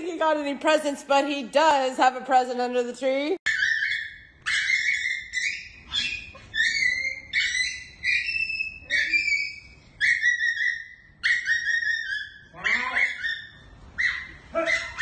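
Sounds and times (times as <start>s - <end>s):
small dog whining: 3.5s - 15.0s.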